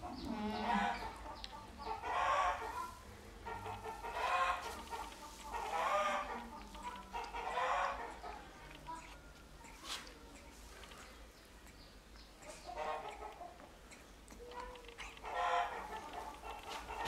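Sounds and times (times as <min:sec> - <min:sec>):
animal calling: 0:00.0 - 0:17.0
faint steady low hum: 0:00.0 - 0:17.0.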